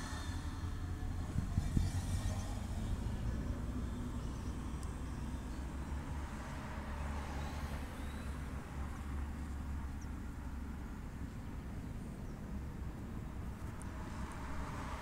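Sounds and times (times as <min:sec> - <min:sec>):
low outdoor rumble: 0:00.0 - 0:06.1.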